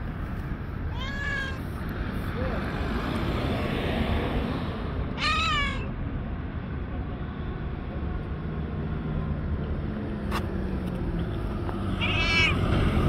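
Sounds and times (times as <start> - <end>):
cat meowing: 0.9 - 1.7, 5.2 - 5.9, 12.0 - 12.6.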